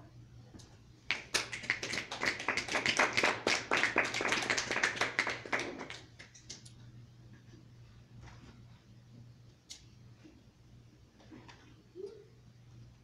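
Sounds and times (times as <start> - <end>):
audience clapping: 1.1 - 6.5.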